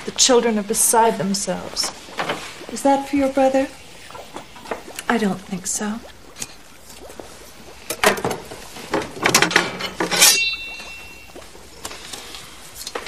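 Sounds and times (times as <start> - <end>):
ringing metal clang: 9.8 - 11.3.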